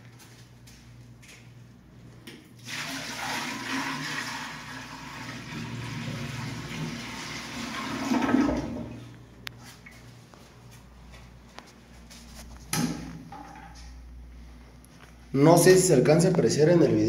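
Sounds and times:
water pouring into toilet bowl: 0:02.6 - 0:09.0
water rushing down drain: 0:02.7 - 0:09.0.

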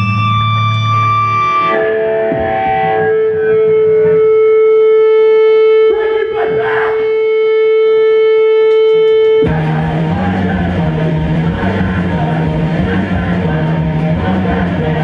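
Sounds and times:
rock band playing: 0:00.0 - 0:06.0, 0:08.7 - 0:15.0
electric guitar feedback: 0:00.0 - 0:15.0.

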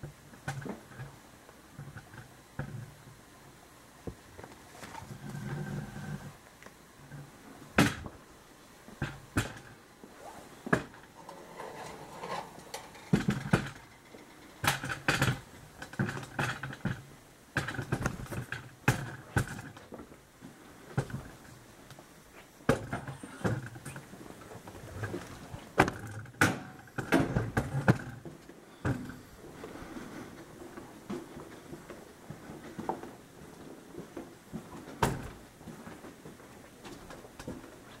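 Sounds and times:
footsteps: 0:28.9 - 0:38.0.

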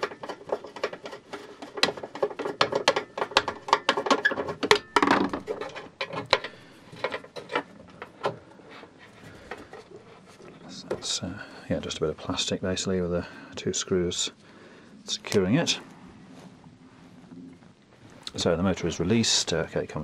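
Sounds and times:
scraping rub: 0:00.0 - 0:03.4.

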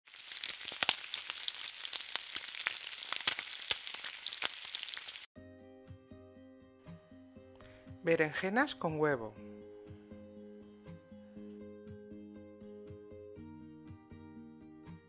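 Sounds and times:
food sizzling in hot oil: 0:00.0 - 0:05.3
quiet music with held notes: 0:05.4 - 0:15.0.

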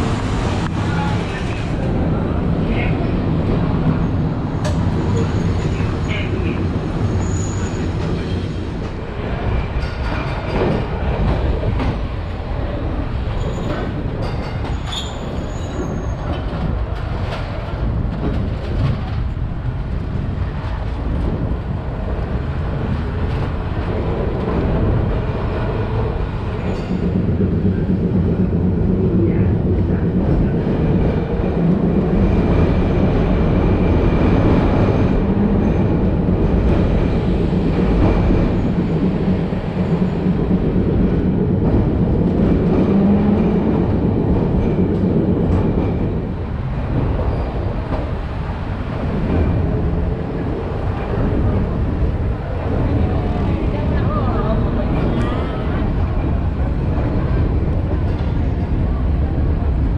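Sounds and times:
tram wheels rumbling: 0:00.0 - 0:59.9
high wheel squeals: 0:14.8 - 0:16.3.

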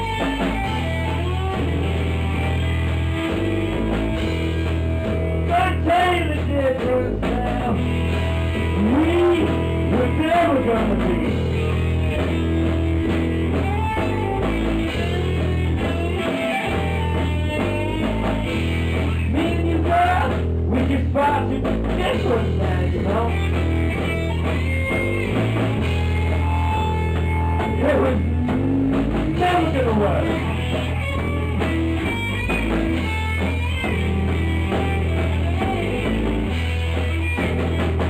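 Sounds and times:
bass guitar: 0:00.0 - 0:38.0
drum kit: 0:00.0 - 0:38.0
electric guitar: 0:00.0 - 0:38.0.

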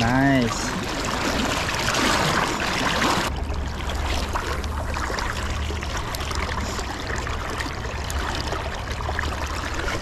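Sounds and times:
fast river water rushing: 0:00.0 - 0:10.0.

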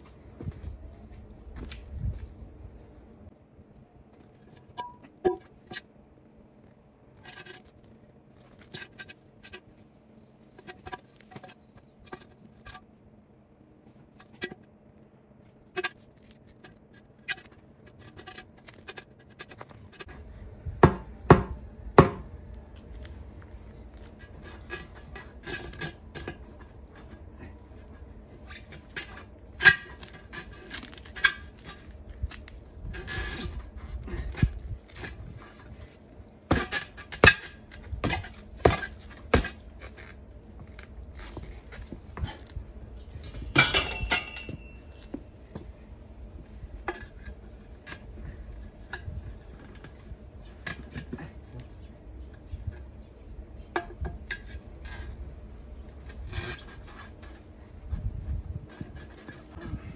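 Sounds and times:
rubber tire scraping metal rim: 0:07.1 - 0:12.9, 0:14.0 - 0:14.7, 0:15.5 - 0:20.3, 0:24.0 - 0:42.4, 0:53.9 - 0:59.9.

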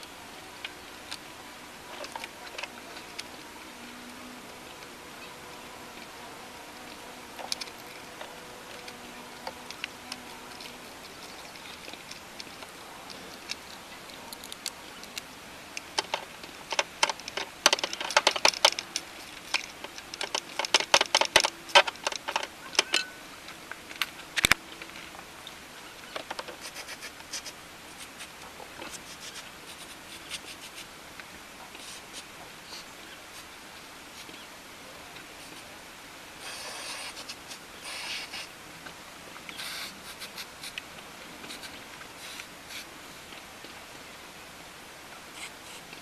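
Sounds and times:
plastic and metal parts clattering: 0:16.0 - 0:23.1.

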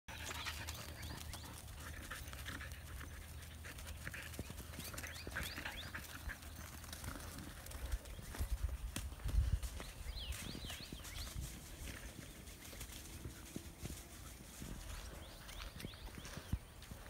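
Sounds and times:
hoofsteps on dry grass: 0:00.1 - 0:17.0
wind rumble on microphone: 0:07.8 - 0:12.4.

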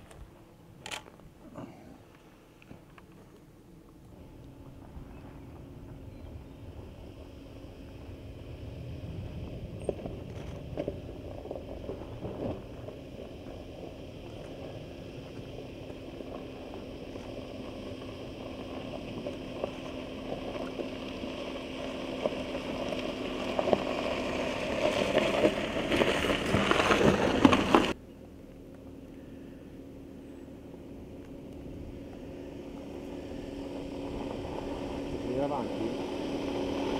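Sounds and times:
car engine running low: 0:00.0 - 0:36.9
tyres crunching over stones: 0:09.8 - 0:28.0.

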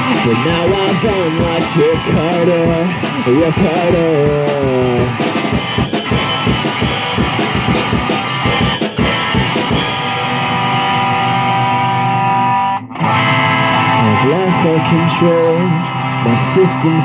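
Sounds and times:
drum kit playing: 0:00.0 - 0:12.4
electric guitar chords: 0:00.0 - 0:17.0.

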